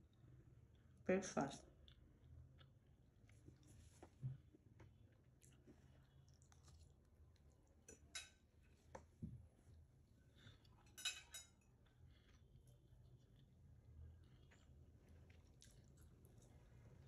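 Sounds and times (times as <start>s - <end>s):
fork clinking on plate: 10.8s - 11.6s.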